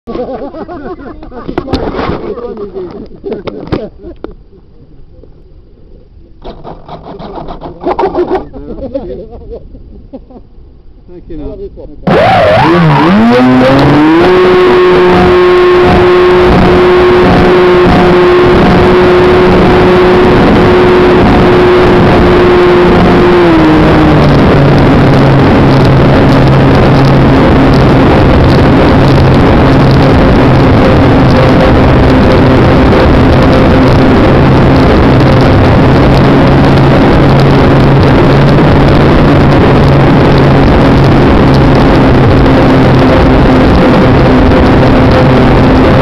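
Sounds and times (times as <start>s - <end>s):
wind rush over microphone: 12.0s - 46.0s
electric motor and propeller whine: 12.1s - 46.0s.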